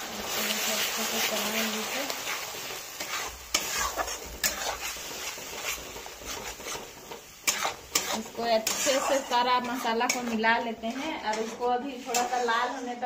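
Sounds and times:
paste sizzling in hot oil: 0.0s - 13.0s
metal spatula scraping pan: 1.3s - 13.0s.

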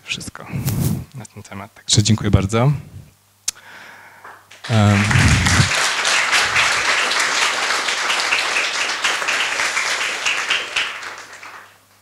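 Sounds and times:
audience applauding: 4.5s - 12.0s.

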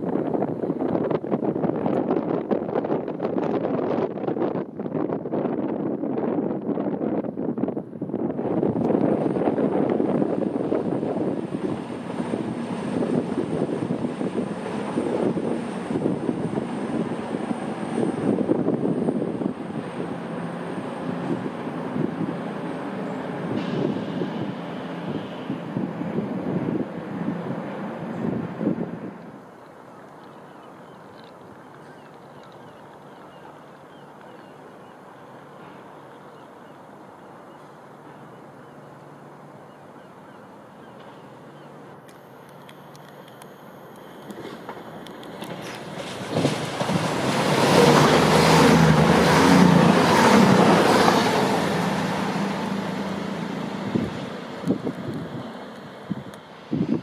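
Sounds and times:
diesel engine drone: 7.9s - 29.9s, 32.2s - 57.0s
train wheels rumbling: 44.3s - 56.4s.

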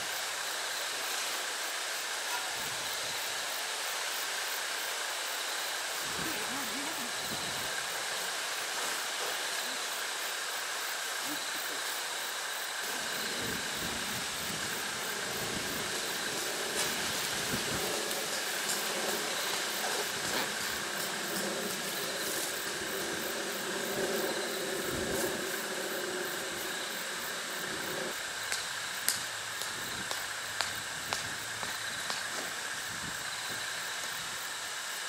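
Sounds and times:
outdoor hiss: 0.0s - 35.0s
sharp clicks of tent stakes: 28.4s - 32.6s.

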